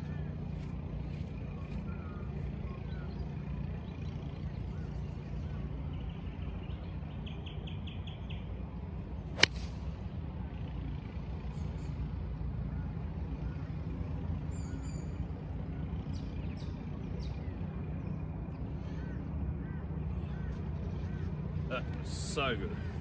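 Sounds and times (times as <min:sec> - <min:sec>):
golf club striking ball: 0:09.3 - 0:09.8.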